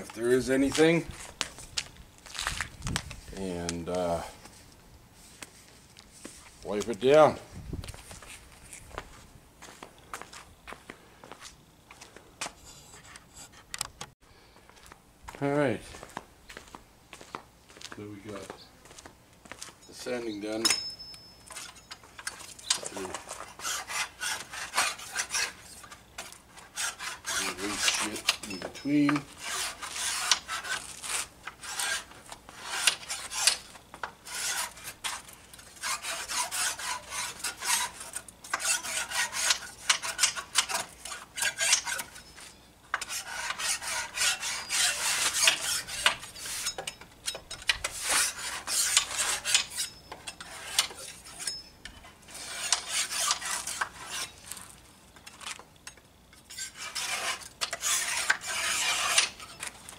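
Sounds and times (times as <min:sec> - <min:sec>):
scraper scratching wooden slats: 0:21.5 - 0:46.9, 0:47.7 - 0:51.5, 0:52.3 - 0:54.7, 0:56.5 - 0:59.9.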